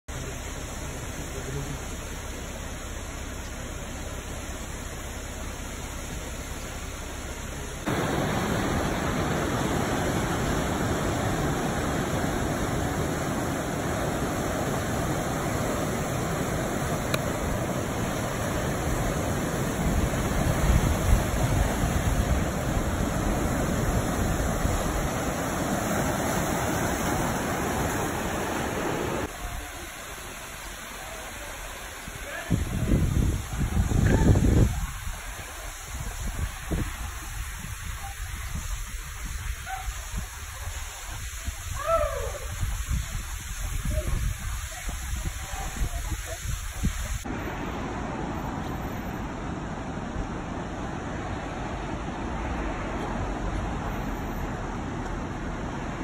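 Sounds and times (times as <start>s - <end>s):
distant waterfall and stream: 0.1s - 56.0s
small waterfall pouring into pool: 7.8s - 47.3s
surf breaking on rocky shore: 7.9s - 35.4s.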